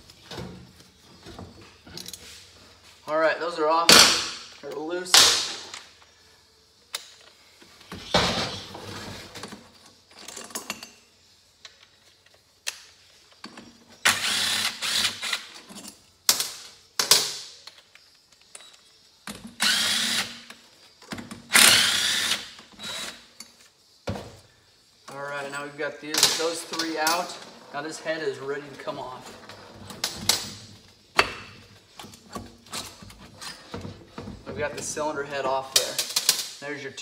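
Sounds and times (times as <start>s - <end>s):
bolts and tools clinking: 0.1s - 2.4s, 9.4s - 14.0s, 14.8s - 19.6s, 25.0s - 27.5s
cordless drill spinning: 14.1s - 15.3s, 19.6s - 20.3s, 21.5s - 23.2s.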